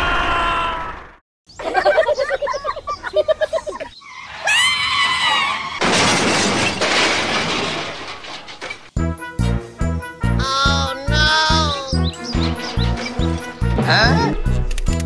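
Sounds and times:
high rising-and-falling cry: 0:04.1 - 0:05.8
warbling squeal: 0:04.1 - 0:05.8
crash and shatter effect: 0:05.7 - 0:09.0.

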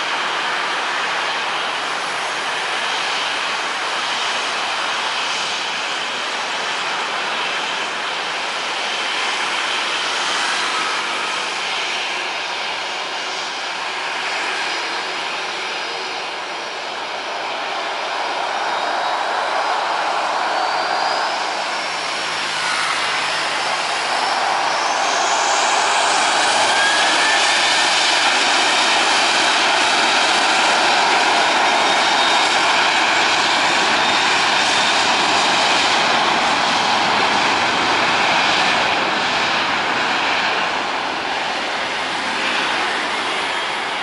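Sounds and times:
jet engines rushing: 0:00.0 - 0:44.0
thin rising whine: 0:18.0 - 0:28.7.

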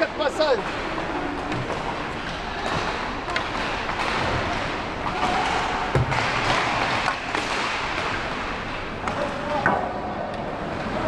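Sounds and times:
hockey sticks and pucks knocking: 0:00.7 - 0:08.4.

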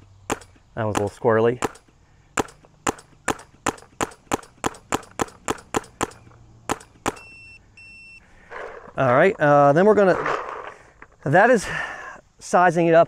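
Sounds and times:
paintball marker shots: 0:00.3 - 0:07.3
high electronic beep: 0:07.1 - 0:08.2.

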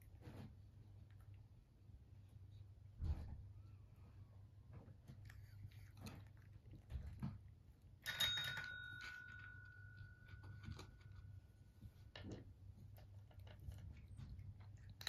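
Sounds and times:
desk bell ringing: 0:08.0 - 0:10.2.

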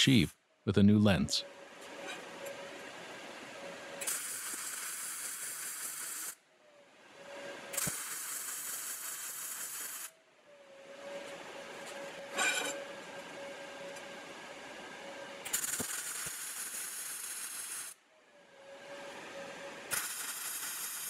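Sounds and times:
welding arc crackling hiss: 0:04.0 - 0:06.4, 0:07.7 - 0:10.1, 0:15.4 - 0:18.0, 0:19.9 - 0:21.0.

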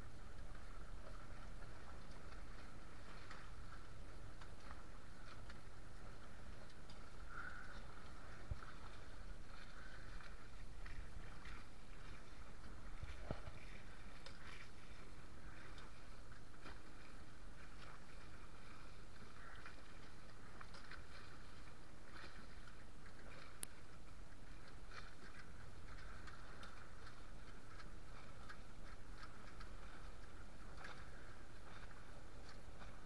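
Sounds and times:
water splashing along a hull: 0:00.0 - 0:33.0
wind on microphone: 0:06.4 - 0:19.9.

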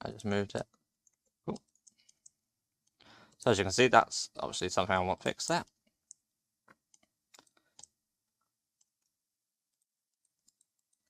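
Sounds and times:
computer mouse and keyboard clicks: 0:01.0 - 0:03.0, 0:10.2 - 0:11.0.

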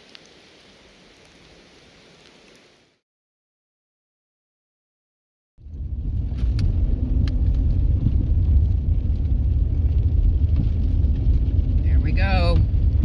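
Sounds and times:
car driving on wet road: 0:05.6 - 0:13.0.

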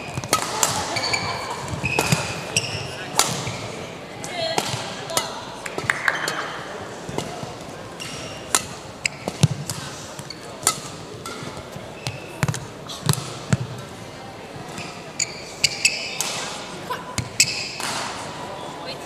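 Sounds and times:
shoes squeaking: 0:00.0 - 0:04.5, 0:07.3 - 0:13.2, 0:14.6 - 0:16.2, 0:17.2 - 0:17.8
rackets hitting shuttlecock: 0:00.0 - 0:13.8, 0:15.7 - 0:18.4.

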